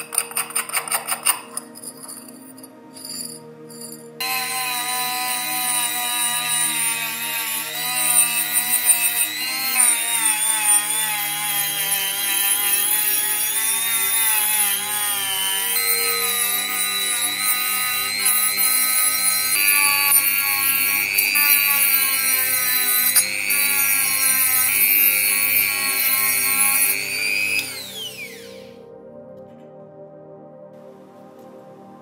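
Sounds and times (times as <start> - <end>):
rotary tool wire brush on metal: 0.0 - 27.9
motor whine: 4.2 - 28.8.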